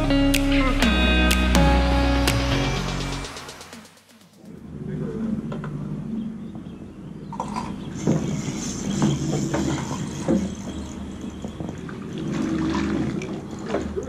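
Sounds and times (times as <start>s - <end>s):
water splashing around boat: 7.4s - 14.0s.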